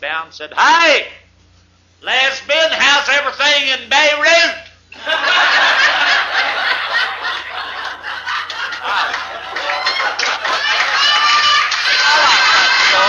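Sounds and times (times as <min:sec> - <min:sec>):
audience laughing: 0:05.0 - 0:13.0.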